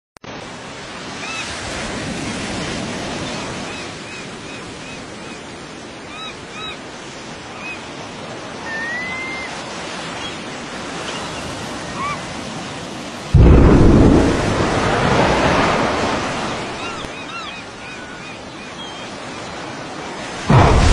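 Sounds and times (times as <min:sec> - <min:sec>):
wind: 0:00.2 - 0:20.9
surf: 0:08.5 - 0:20.9
loud low explosion boom: 0:13.4 - 0:16.7, 0:20.5 - 0:20.9.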